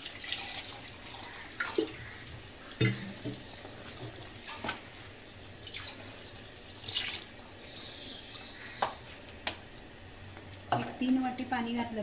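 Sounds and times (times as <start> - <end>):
water splashing into a pot: 0.0 - 4.9, 5.5 - 7.6.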